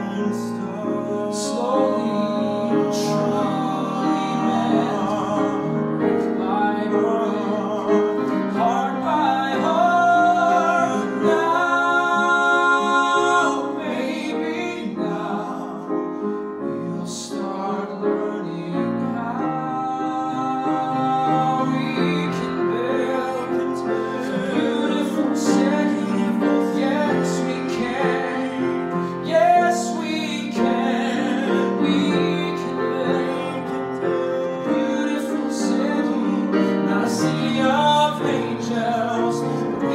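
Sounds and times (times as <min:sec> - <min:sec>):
man singing a slow ballad: 0:00.0 - 0:39.9
piano accompaniment: 0:00.0 - 0:39.9.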